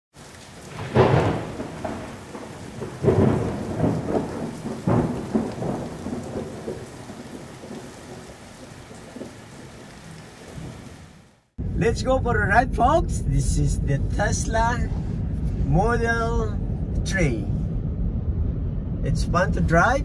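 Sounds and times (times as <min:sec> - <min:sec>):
rain hiss: 0:00.2 - 0:11.5
thunder rumbling: 0:00.2 - 0:20.0.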